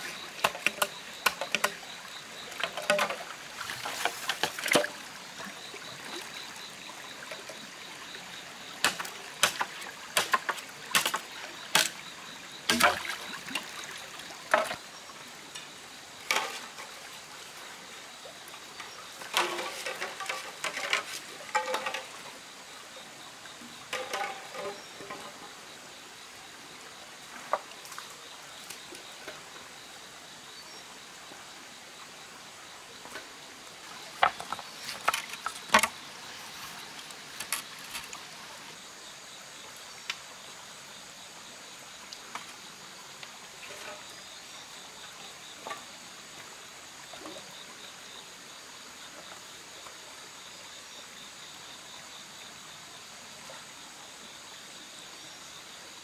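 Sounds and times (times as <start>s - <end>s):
insects droning: 0.0s - 56.0s
stream trickling over rocks: 0.0s - 56.0s
stones and bamboo poles knocking: 0.1s - 5.5s, 8.8s - 12.0s, 12.6s - 14.9s, 16.2s - 16.9s, 18.8s - 22.4s, 23.9s - 25.5s, 34.2s - 36.1s.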